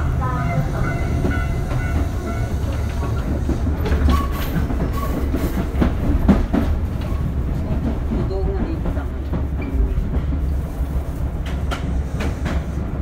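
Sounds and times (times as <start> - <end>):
train interior rumble: 0.0 - 13.0
wheel clacks over rail joints: 0.4 - 10.5.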